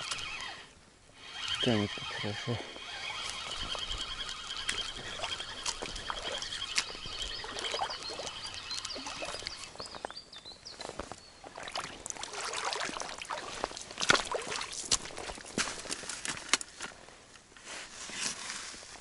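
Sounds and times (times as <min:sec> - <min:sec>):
fishing reel whirring: 0:00.0 - 0:09.8
water splashing and dripping: 0:04.6 - 0:09.7, 0:11.4 - 0:15.5.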